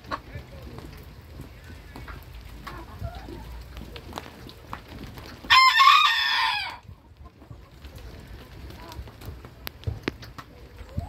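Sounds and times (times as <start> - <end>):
hen clucks: 0.0 - 4.0, 6.6 - 9.2, 10.2 - 11.0
rooster crowing: 5.5 - 6.8.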